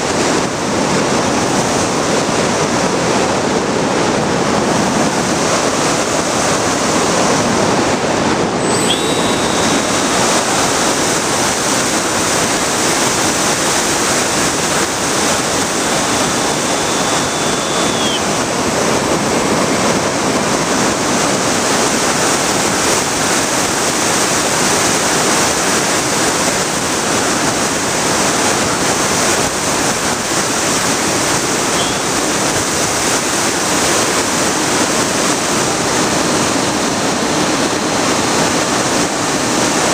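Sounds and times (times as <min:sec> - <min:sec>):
faint high whine: 0:08.5 - 0:24.5, 0:31.0 - 0:39.5.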